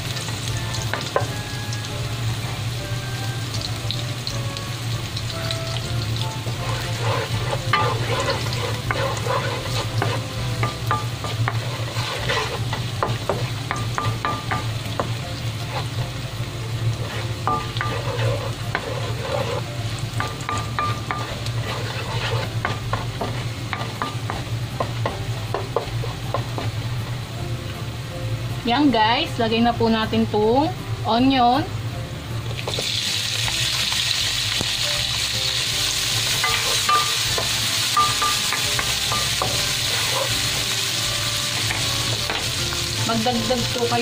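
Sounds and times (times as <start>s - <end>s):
garlic sizzling in hot oil: 0.0s - 44.0s
wooden spatula stirring: 6.4s - 16.2s, 16.9s - 26.8s, 36.2s - 40.8s.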